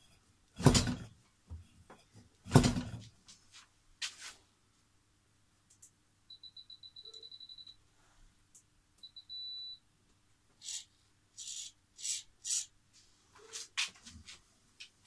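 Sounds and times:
rustling swishes near microphone: 3.3 - 4.5.

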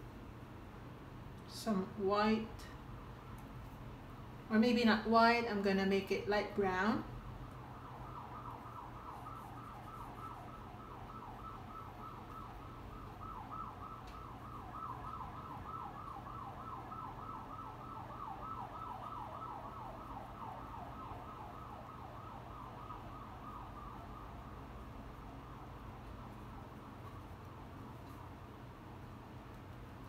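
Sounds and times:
steady low hum: 0.0 - 30.0
siren in a fast yelp: 7.6 - 24.6.

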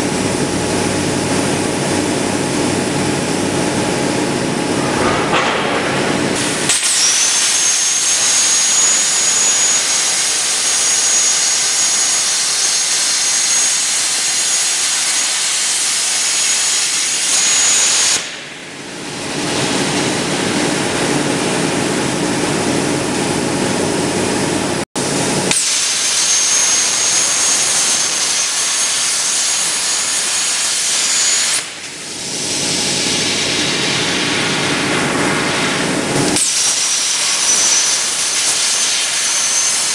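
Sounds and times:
plasma torch cutting steel: 4.6 - 21.2, 25.1 - 39.9.

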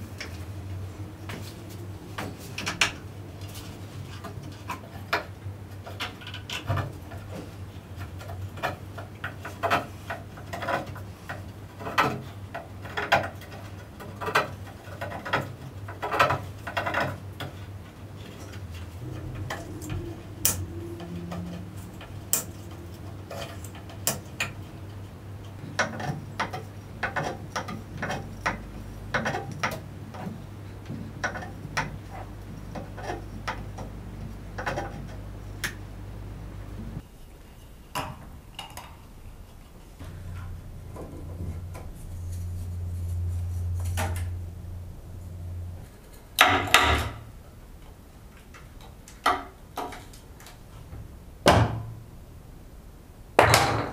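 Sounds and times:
steady low hum: 17.4 - 53.9.

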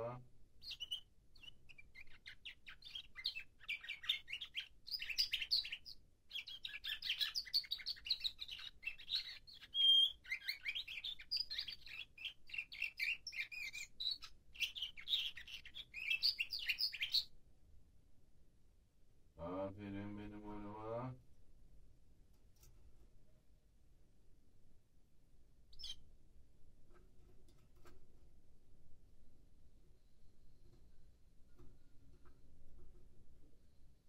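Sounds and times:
canary singing rapid chirps: 0.6 - 17.3, 25.7 - 26.0.

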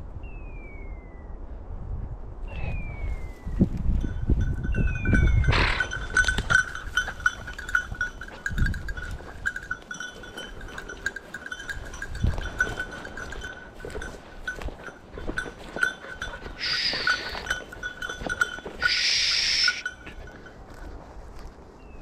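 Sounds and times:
rustling through undergrowth: 3.1 - 22.0
dog collar bells jingling: 4.0 - 21.1.

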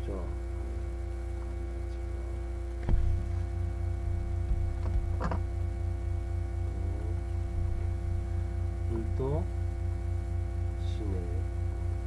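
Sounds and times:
electrical mains hum: 0.0 - 12.0
knocks: 4.4 - 5.5.

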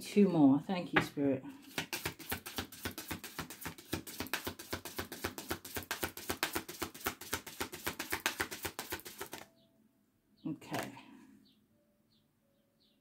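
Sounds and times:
cards being shuffled: 1.6 - 9.5.

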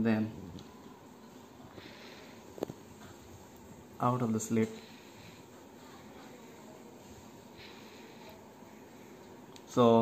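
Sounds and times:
faint steady hiss: 0.0 - 10.0.

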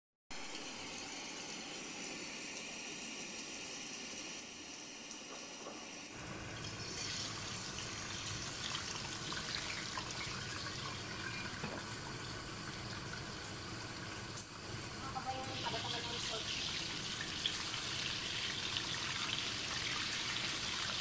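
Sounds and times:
fish sizzling in hot oil: 5.8 - 21.0.

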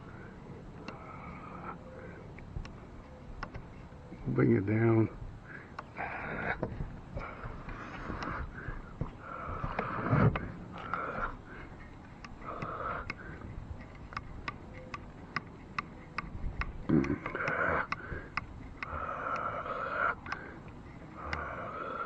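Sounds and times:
man breathing through nose: 5.4 - 13.9, 17.3 - 22.0.

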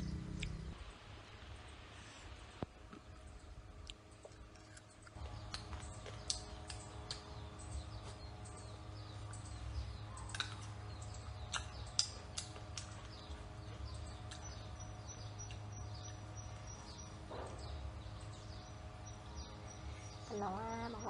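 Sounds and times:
birds chirping: 0.0 - 21.0
steady low hum: 0.0 - 21.0
crunchy chewing of fruit: 2.9 - 8.5, 10.2 - 14.8, 15.4 - 16.1.

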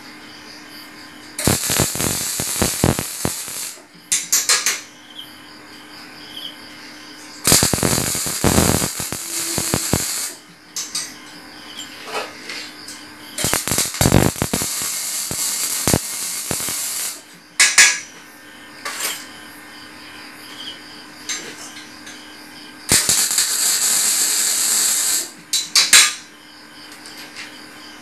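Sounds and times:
faint steady hum: 0.0 - 4.2, 5.0 - 25.6
arc welding crackling hiss: 1.4 - 4.3, 7.4 - 10.4, 13.4 - 17.3, 22.9 - 25.6.

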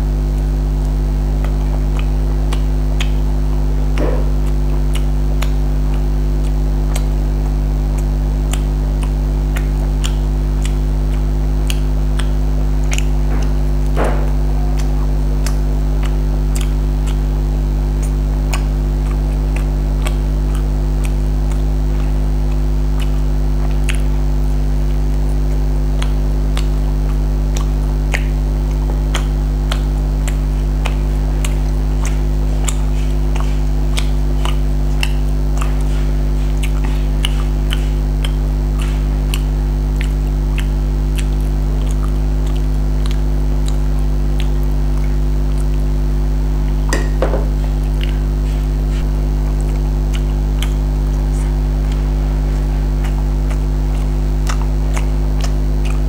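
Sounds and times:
chewing with wet smacks: 0.0 - 56.0
low electrical hum: 0.0 - 56.0
fingers picking at rice: 25.6 - 45.8.

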